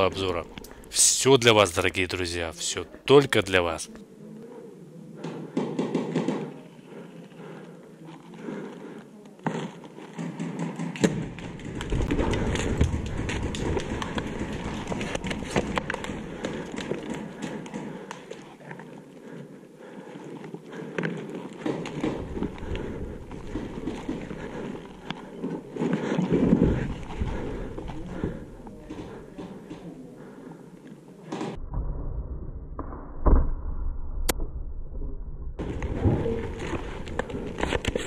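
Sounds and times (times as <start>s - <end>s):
scraping and crunching over rubble: 11.1s - 17.6s.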